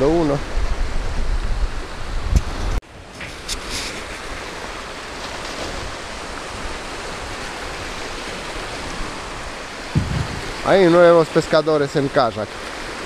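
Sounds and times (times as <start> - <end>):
sharp water splashes: 3.1 - 13.0
waves washing onto gravel shore: 3.2 - 13.0.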